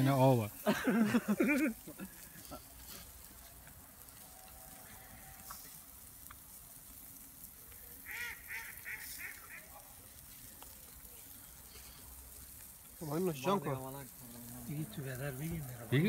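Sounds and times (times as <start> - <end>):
meat sizzling on a grill: 0.0 - 16.0
small crackles: 0.0 - 16.0
goose honking: 8.0 - 9.8.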